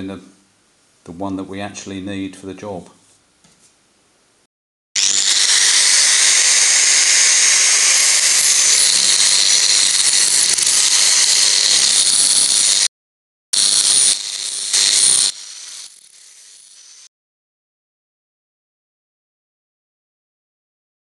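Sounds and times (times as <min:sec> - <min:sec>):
angle grinder on steel: 0:05.0 - 0:12.9, 0:13.6 - 0:17.1.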